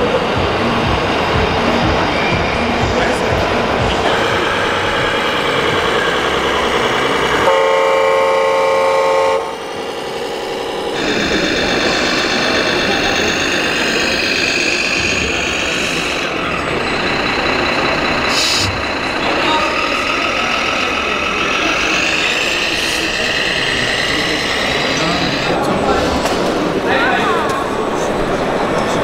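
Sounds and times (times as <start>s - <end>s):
crowd chatter: 0.0s - 29.0s
simulated engine running: 0.0s - 29.0s
toy truck horn blast: 7.2s - 9.7s.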